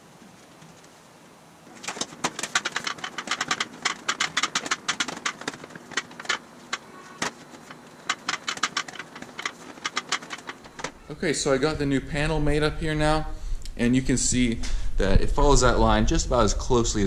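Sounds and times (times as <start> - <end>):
metal sheet clicking and tapping: 1.7 - 11.0.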